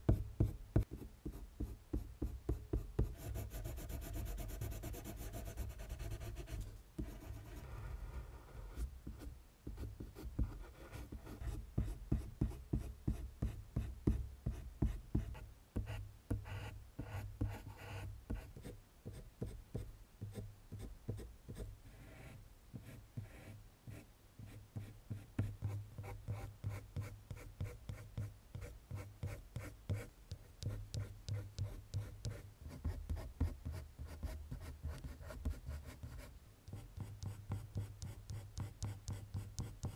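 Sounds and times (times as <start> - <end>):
pencil scratching on paper: 3.0 - 8.9.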